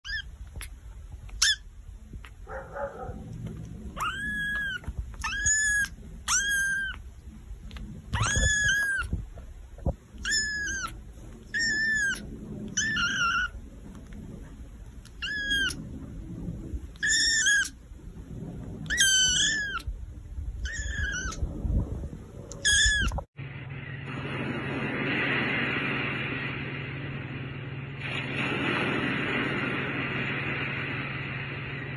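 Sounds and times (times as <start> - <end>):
kitten meowing: 0.0 - 1.7, 3.9 - 7.0, 7.7 - 9.2, 10.2 - 13.5, 15.0 - 15.8, 17.0 - 17.8, 18.8 - 19.9, 20.6 - 21.4, 22.5 - 23.2.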